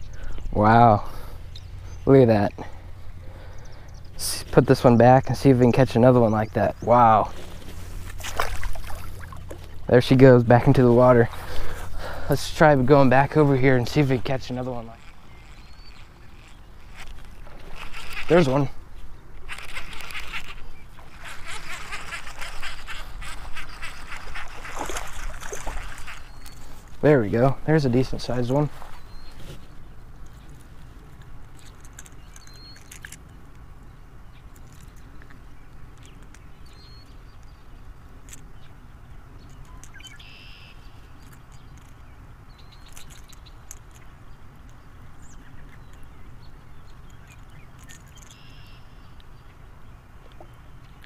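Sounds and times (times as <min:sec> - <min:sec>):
fishing reel ticking: 0:13.8 - 0:18.6, 0:19.4 - 0:26.6
bird chirps: 0:14.5 - 0:17.0, 0:28.0 - 0:30.6, 0:31.6 - 0:33.1, 0:34.3 - 0:37.8, 0:39.4 - 0:51.0
light clicks of fishing lure: 0:30.2 - 0:33.7, 0:34.4 - 0:37.6, 0:46.9 - 0:49.3.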